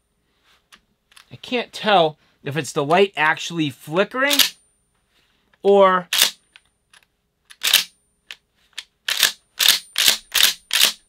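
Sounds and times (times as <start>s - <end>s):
shotgun pump action clacking: 9.1s - 11.0s.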